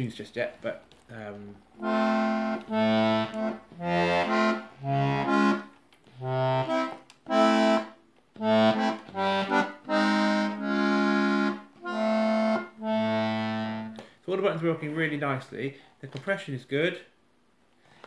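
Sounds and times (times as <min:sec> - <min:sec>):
melodeon chords and bass notes: 0:01.8 - 0:14.0.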